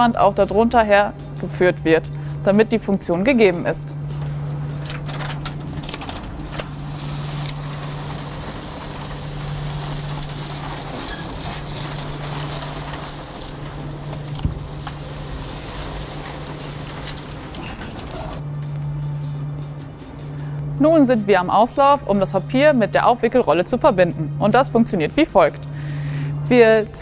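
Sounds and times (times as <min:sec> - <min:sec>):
steady low hum: 0:00.0 - 0:27.0
heavy paper rustling and crinkling: 0:04.1 - 0:18.4.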